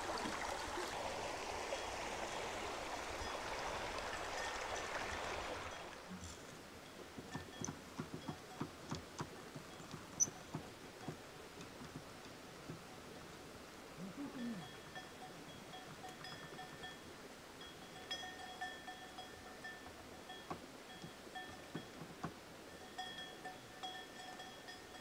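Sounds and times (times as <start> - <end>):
stream running over stones: 0.0 - 24.2
faint clicks and knocks: 7.2 - 12.9.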